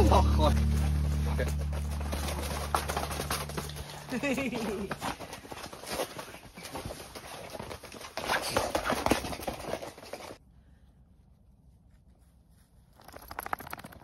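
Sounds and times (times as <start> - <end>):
footsteps rustling on groundsheet: 0.6 - 10.4.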